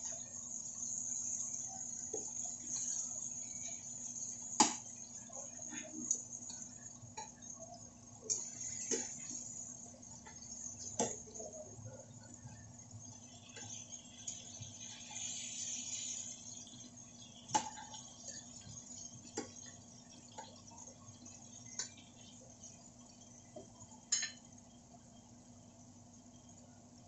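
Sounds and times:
oil sizzling: 0.0s - 27.0s
metal tongs clinking on frying pan: 24.1s - 24.4s.

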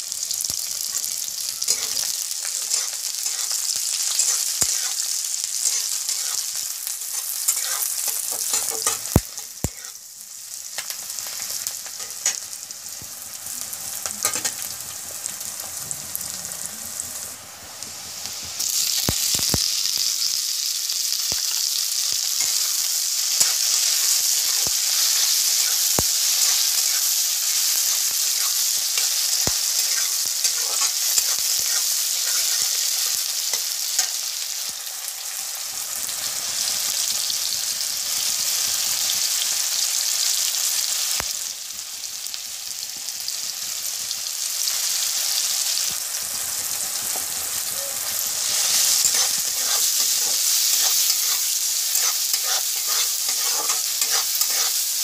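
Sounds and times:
onions sizzling in hot oil: 0.0s - 55.0s
metal spatula scraping a pan: 0.9s - 10.0s, 23.3s - 34.2s, 47.9s - 55.0s.

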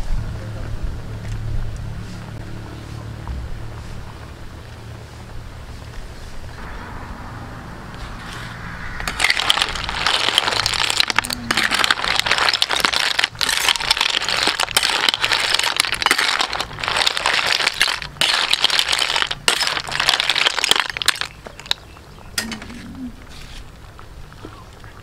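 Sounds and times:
snail shells clattering in metal pan: 9.0s - 21.8s.

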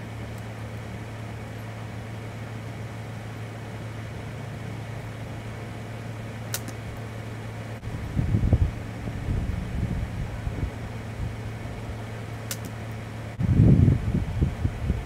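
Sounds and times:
low mechanical hum with hiss: 0.0s - 15.0s
bow release clicks: 6.5s - 6.8s, 12.4s - 12.8s.

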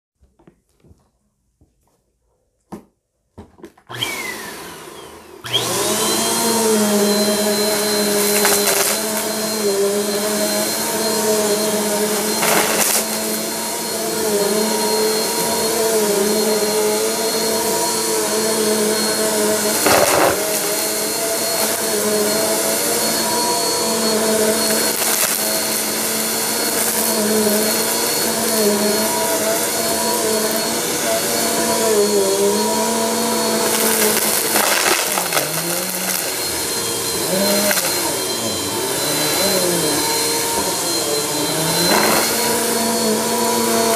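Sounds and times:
vacuum cleaner motor running: 3.9s - 43.9s
debris clattering in vacuum: 19.6s - 21.9s, 32.6s - 36.7s.

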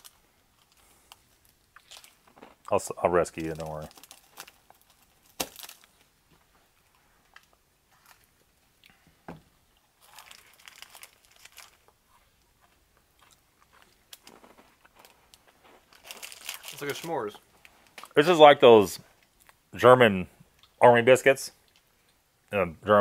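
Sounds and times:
foil crinkling: 0.0s - 2.6s, 3.2s - 6.1s, 10.0s - 12.0s, 14.1s - 18.2s
knife slitting foil wrapper: 3.5s - 5.9s.

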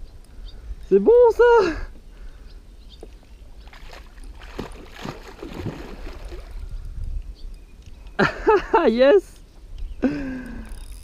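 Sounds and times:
fish splashing at water surface: 3.8s - 6.6s.

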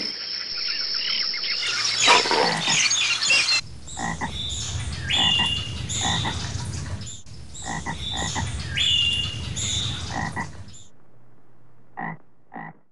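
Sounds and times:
frogs croaking: 0.0s - 10.9s, 11.9s - 12.9s
high whistled calls: 0.2s - 6.5s, 7.1s - 10.2s.

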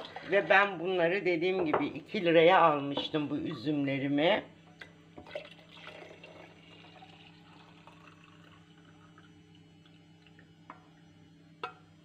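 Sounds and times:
juice trickling into a jar: 5.2s - 10.5s.

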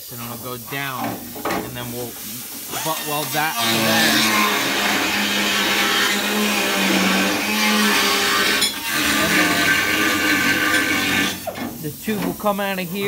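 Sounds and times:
electric machine running: 3.6s - 11.4s.

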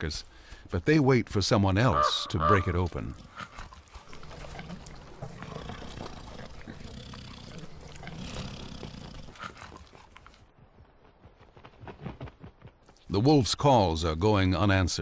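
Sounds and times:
large animal growling: 2.3s - 9.8s.

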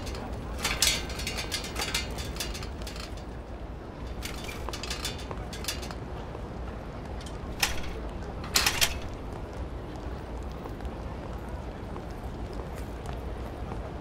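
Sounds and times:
bicycle clicking and rattling: 0.0s - 10.0s
sharp clack: 7.2s - 9.2s.

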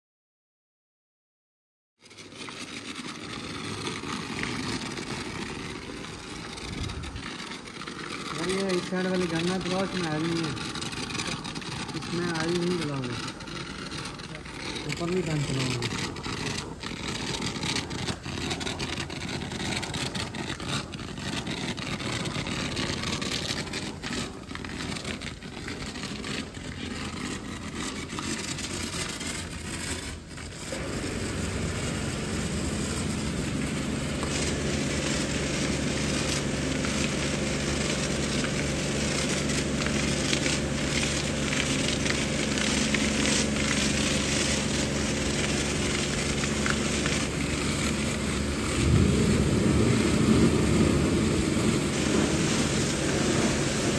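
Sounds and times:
hose spraying water: 2.0s - 53.9s
steady machine hum: 2.6s - 53.9s.

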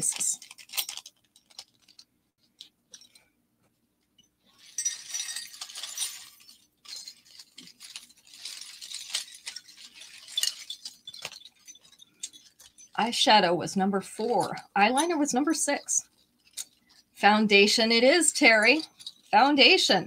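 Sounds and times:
metal jewelry clinking and rattling: 0.0s - 3.3s, 4.0s - 13.4s, 14.2s - 20.0s.

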